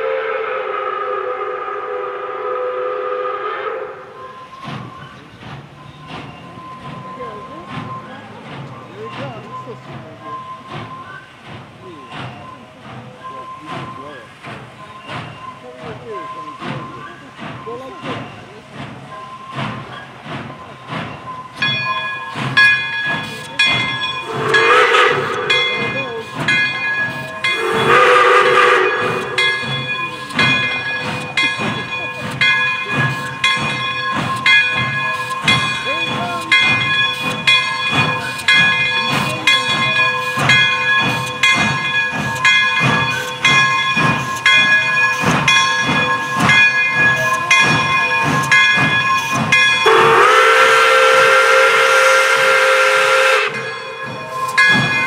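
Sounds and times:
steam whistle blasts: 0.0s - 4.4s, 24.2s - 26.0s, 27.4s - 29.8s, 49.8s - 53.8s
steam locomotive exhaust beat: 0.0s - 55.0s
bell ringing: 25.5s - 27.9s, 29.0s - 50.0s, 53.5s - 55.0s.

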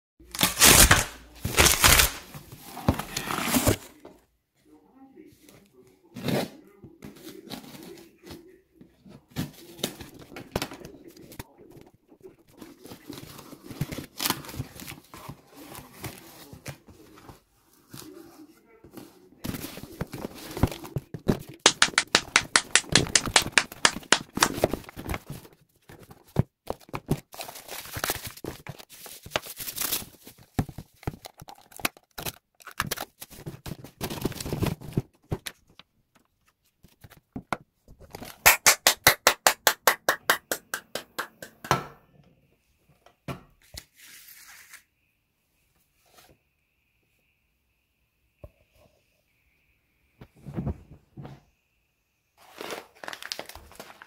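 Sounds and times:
cardboard handled and torn: 0.2s - 2.3s, 2.9s - 3.9s, 21.4s - 25.4s, 52.4s - 54.0s.

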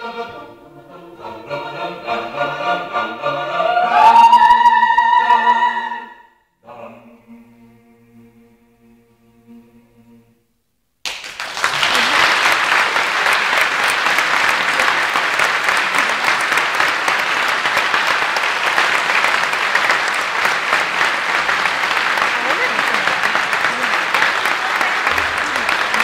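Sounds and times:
audience applauding: 11.0s - 26.0s.

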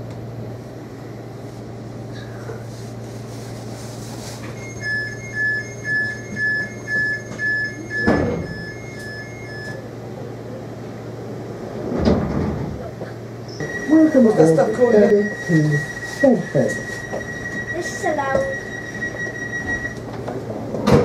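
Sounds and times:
train hum: 0.0s - 20.9s
two-tone door warning beeps: 4.4s - 9.9s, 13.5s - 20.2s
sliding doors thudding shut: 11.8s - 12.9s.

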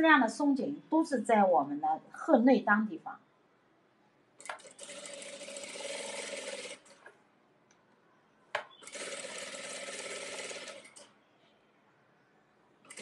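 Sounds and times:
sewing machine stitching rapidly: 4.4s - 7.0s, 8.8s - 11.1s.

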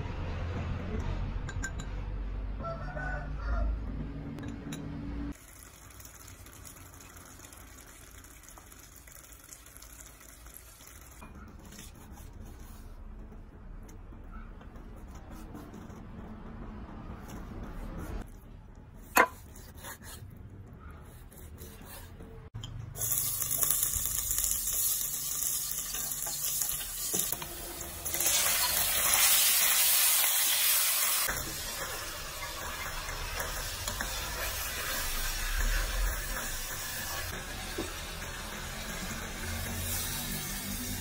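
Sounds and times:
meat sizzling in pot: 5.3s - 11.2s, 22.9s - 41.0s.

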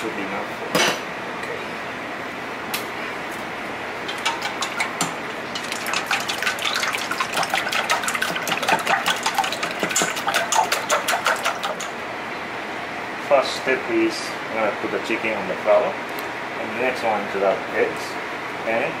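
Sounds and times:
egg sloshing: 4.0s - 12.0s
whisk clicking against metal bowl: 4.1s - 12.0s.

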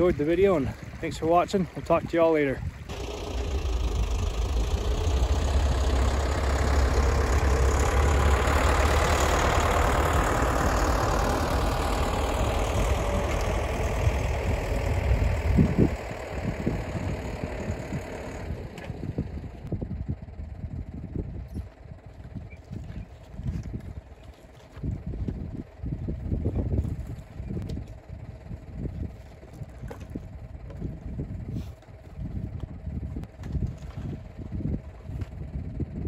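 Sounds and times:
tractor diesel engine driving past: 0.0s - 33.3s.

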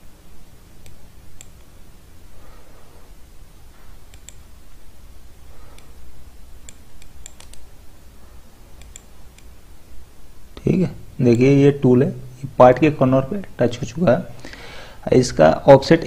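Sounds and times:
computer mouse clicking: 0.8s - 1.7s, 4.0s - 4.5s, 5.7s - 6.0s, 6.6s - 7.7s, 8.8s - 9.5s.

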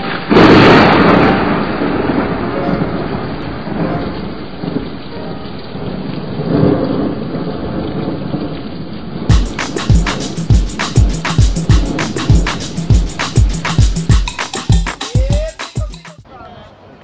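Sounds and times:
thunder clap and rumble: 0.0s - 14.2s
rain hissing: 0.0s - 16.1s.

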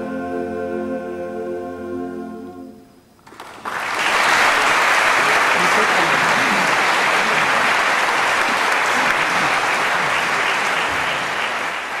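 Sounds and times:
audience applauding: 3.2s - 12.0s.

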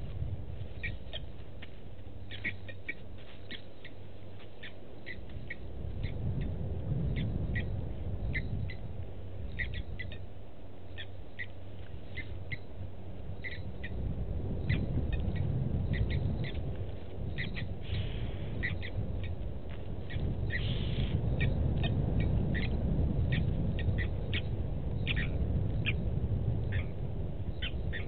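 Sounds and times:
steady low rumble: 0.0s - 28.0s.

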